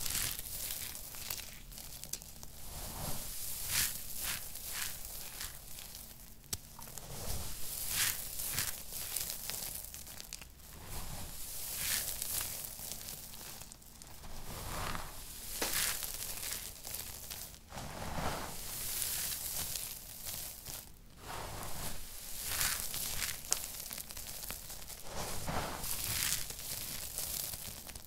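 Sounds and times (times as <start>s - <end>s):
soap crumbs crunching in hand: 0.1s - 2.5s, 3.6s - 7.1s, 7.7s - 10.6s, 11.4s - 14.0s, 15.3s - 17.6s, 18.7s - 21.0s, 22.2s - 25.0s, 25.8s - 28.0s.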